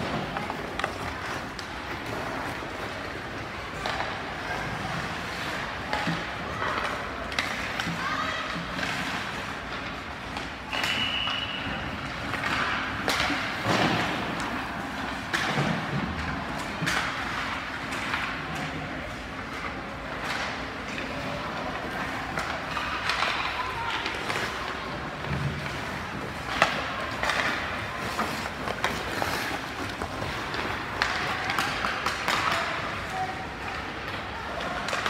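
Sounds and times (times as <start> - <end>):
whistle blast: 10.7 - 11.7.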